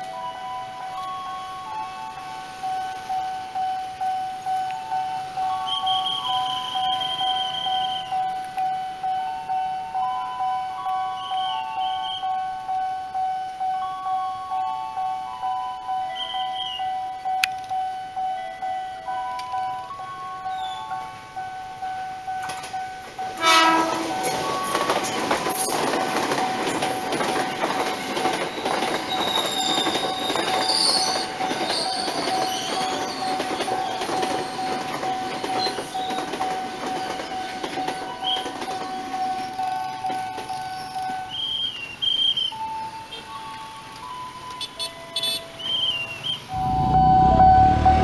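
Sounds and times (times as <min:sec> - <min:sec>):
crossing warning alarm tone: 0:00.0 - 0:48.0
train wheels clattering on rails: 0:22.3 - 0:46.5
train horn blast: 0:23.3 - 0:24.4.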